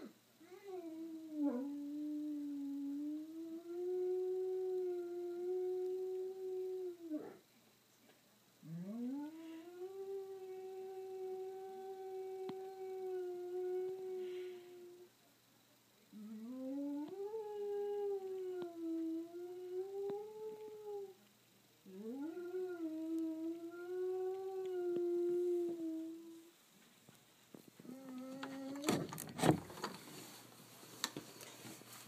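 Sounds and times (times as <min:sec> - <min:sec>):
dog howling: 0:00.9 - 0:07.4, 0:16.2 - 0:21.2, 0:21.9 - 0:26.5.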